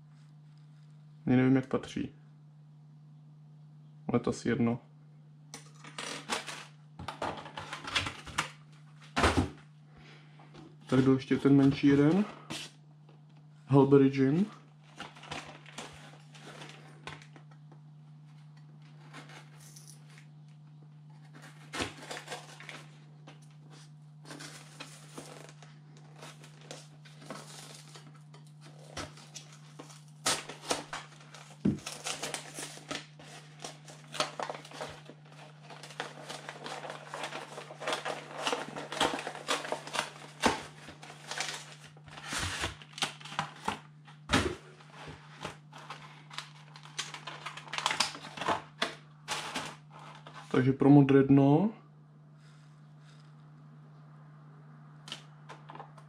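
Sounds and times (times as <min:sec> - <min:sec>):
steady low hum: 0:00.0 - 0:56.0
plastic crinkling: 0:14.7 - 0:17.6, 0:18.4 - 0:50.6.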